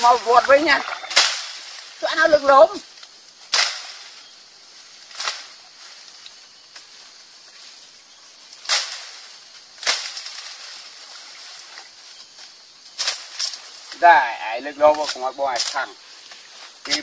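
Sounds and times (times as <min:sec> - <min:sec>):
steady faint hiss: 0:00.0 - 0:17.0
grass stems snapping and tearing: 0:08.6 - 0:09.2, 0:09.8 - 0:10.8.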